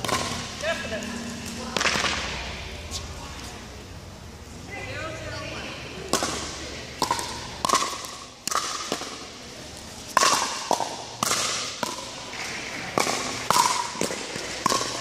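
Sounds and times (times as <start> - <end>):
paddles striking plastic ball: 6.1 - 9.3, 10.1 - 15.0.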